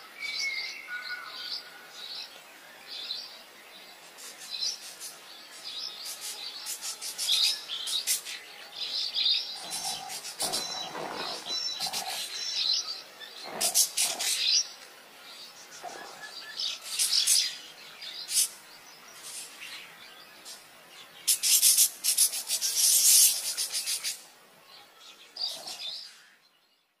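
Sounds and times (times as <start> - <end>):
parakeets screeching chirps: 9.6 - 12.8.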